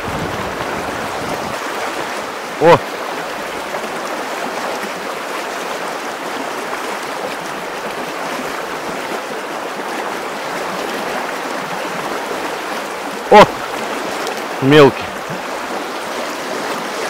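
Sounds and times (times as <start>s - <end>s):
river rushing over stones: 0.0s - 17.0s
water splashing around wading legs: 0.0s - 17.0s.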